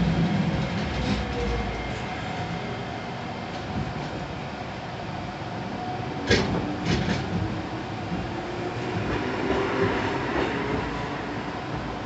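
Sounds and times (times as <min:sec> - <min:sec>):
tram wheels clacking on track: 0:00.0 - 0:02.4, 0:06.2 - 0:12.0
tram rumbling: 0:00.0 - 0:12.0.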